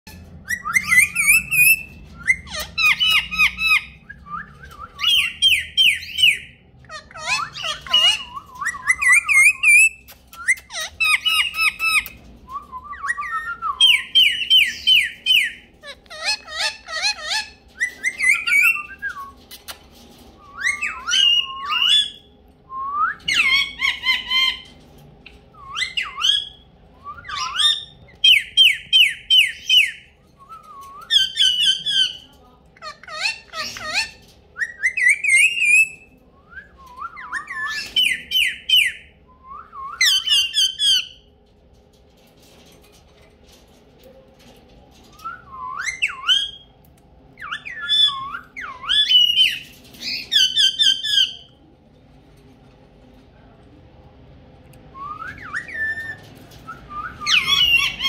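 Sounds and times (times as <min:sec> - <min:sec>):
parakeet squawking: 0:05.0 - 0:12.2, 0:13.9 - 0:18.8.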